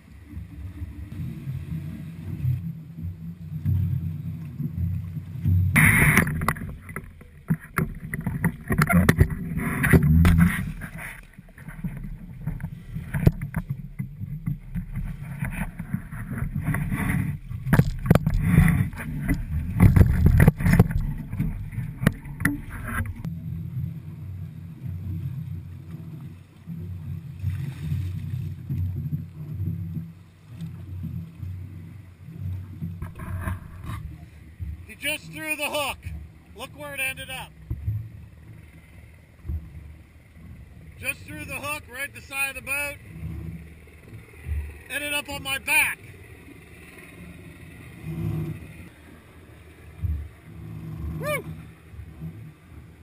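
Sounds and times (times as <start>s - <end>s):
low rumble: 0.0s - 35.0s
wind on microphone: 0.0s - 35.0s
water slapping against hull: 0.0s - 53.0s
knocks and bumps: 11.6s - 23.3s.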